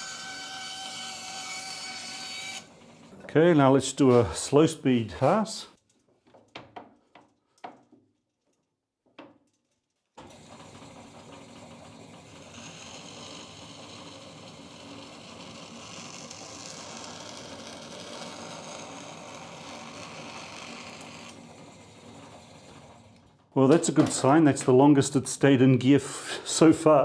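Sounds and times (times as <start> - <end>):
bandsaw sawing wood: 0.0 - 4.4, 12.2 - 21.4.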